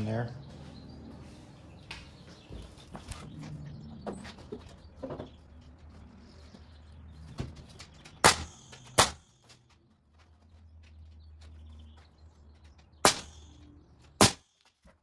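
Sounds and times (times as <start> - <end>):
air nailer shots: 8.2 - 9.4, 13.0 - 13.6, 14.2 - 14.5.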